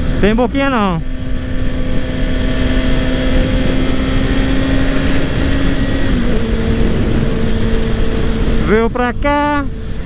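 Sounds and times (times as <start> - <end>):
motorcycle engine cruising: 0.0 - 10.0
wind and road noise: 0.0 - 10.0.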